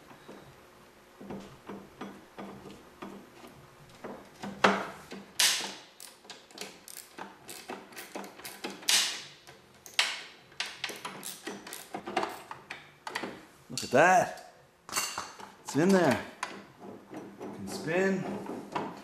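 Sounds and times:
wrench clicking on metal: 0:05.4 - 0:09.2, 0:09.8 - 0:13.2.

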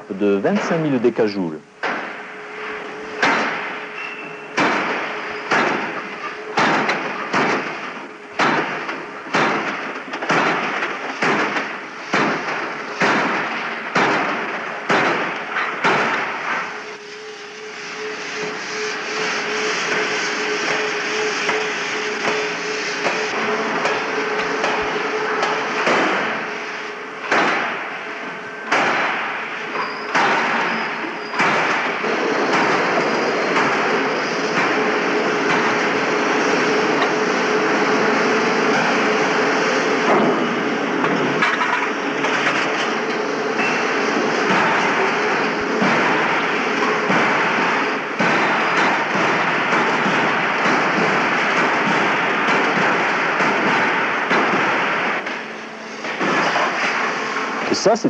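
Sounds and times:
forging hammer striking metal: 0:03.2 - 0:16.4, 0:27.2 - 0:27.9, 0:28.6 - 0:35.8
spray lance hissing: 0:16.4 - 0:27.2.

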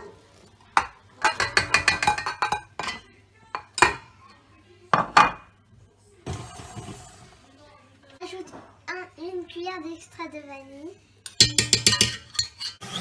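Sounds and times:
dish clinking against metal bowl: 0:00.8 - 0:03.0, 0:11.2 - 0:12.8.

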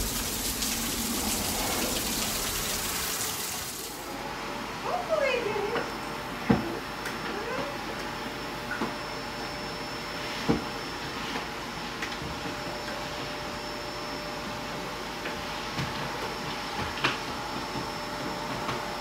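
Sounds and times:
heavy rain and hail: 0:00.0 - 0:03.9.

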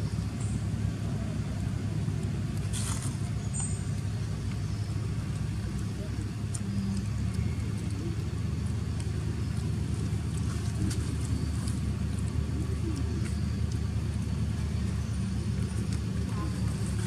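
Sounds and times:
low background rumble: 0:00.0 - 0:17.0
faint ticks and clicks: 0:03.5 - 0:17.0.

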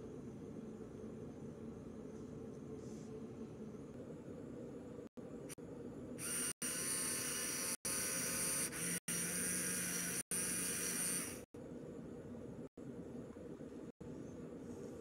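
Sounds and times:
electric motors whining: 0:06.2 - 0:11.5.

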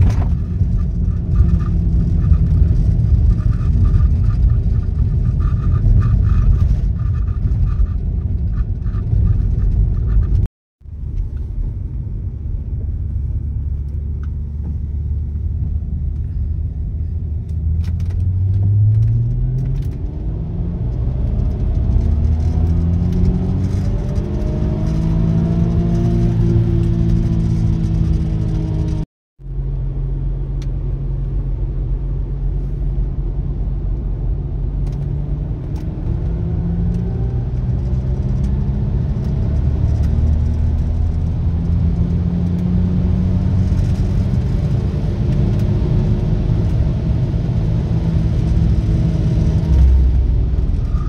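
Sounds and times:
road noise inside car: 0:00.0 - 0:51.0
car engine revving: 0:17.6 - 0:29.0, 0:34.7 - 0:51.0.

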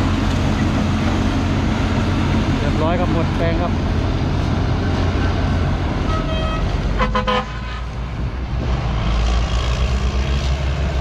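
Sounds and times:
heavy diesel machinery running: 0:00.0 - 0:11.0
horn tooting: 0:06.0 - 0:07.9.

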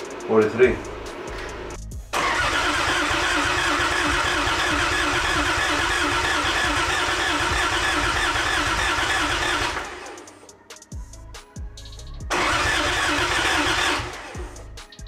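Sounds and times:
engine cranking on starter motor: 0:01.4 - 0:10.2, 0:12.3 - 0:14.6.

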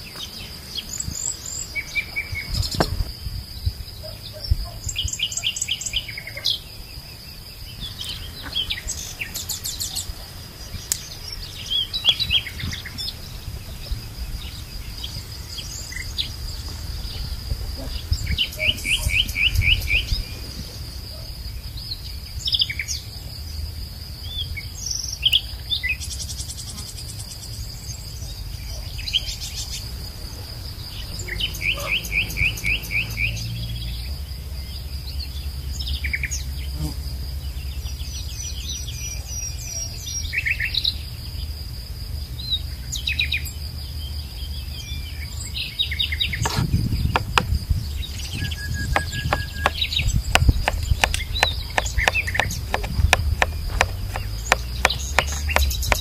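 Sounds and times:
small birds chirping: 0:00.0 - 0:23.1, 0:24.2 - 0:41.6, 0:42.2 - 0:56.0
high insect drone: 0:00.0 - 0:56.0
soft knocks: 0:46.4 - 0:47.6, 0:49.0 - 0:56.0.

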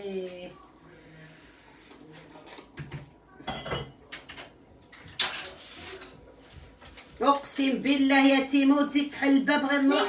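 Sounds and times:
dishes and utensils clattering: 0:02.2 - 0:06.1.

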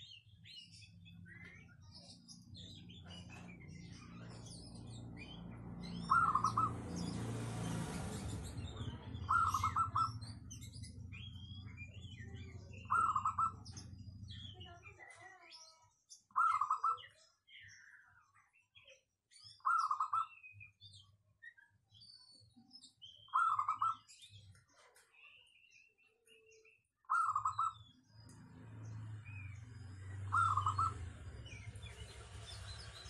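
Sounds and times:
small birds chirping: 0:00.0 - 0:33.0
dove cooing: 0:06.1 - 0:06.7, 0:09.2 - 0:10.1, 0:12.9 - 0:13.6, 0:30.3 - 0:31.2.

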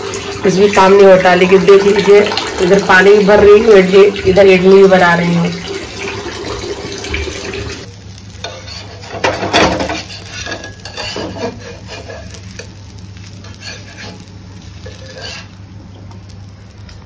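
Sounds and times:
dosa sizzling: 0:00.0 - 0:17.0
spatula scraping and knocking pan: 0:08.4 - 0:15.6.

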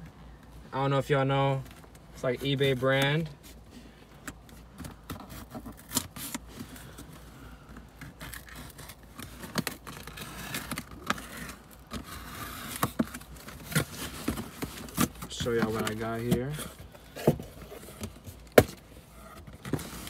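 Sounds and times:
packing tape peeling: 0:05.2 - 0:06.4, 0:08.0 - 0:15.9.

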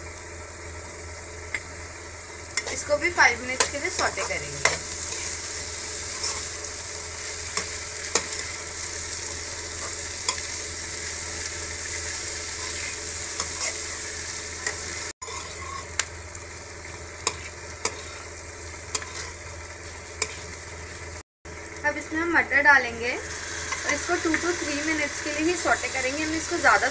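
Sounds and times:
vegetables sizzling in oil: 0:00.0 - 0:26.9
spatula scraping and tapping pan: 0:15.2 - 0:16.1, 0:17.2 - 0:18.3, 0:18.9 - 0:19.4, 0:20.2 - 0:20.6.

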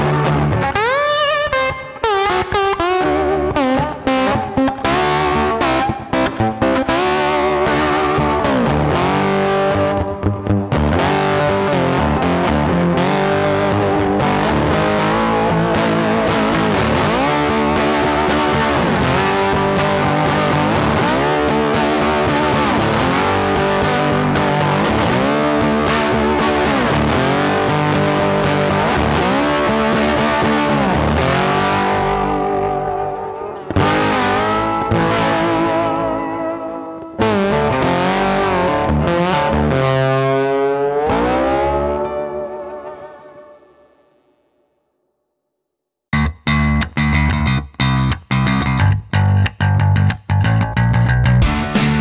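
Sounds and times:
distorted electric guitar music: 0:00.0 - 0:44.9, 0:46.1 - 0:52.0.

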